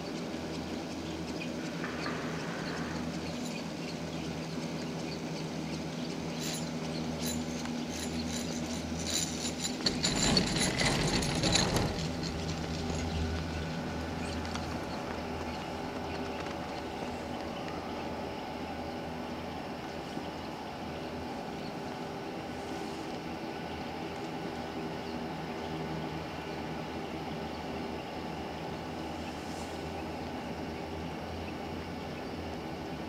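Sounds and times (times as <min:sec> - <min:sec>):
haul rope humming over sheaves: 0:00.0 - 0:33.0
clicking rattle of passing cabin: 0:06.6 - 0:17.8.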